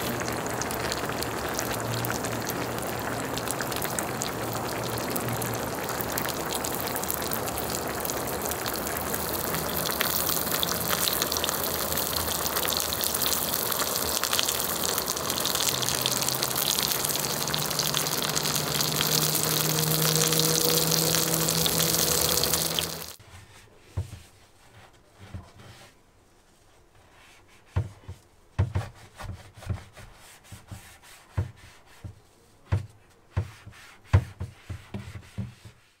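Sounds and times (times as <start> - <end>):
broth bubbling: 0.0 - 23.2
food sizzling: 0.0 - 23.2
sponge scrubbing pan: 26.7 - 36.0
knocks and scrapes in metal sink: 27.7 - 35.9.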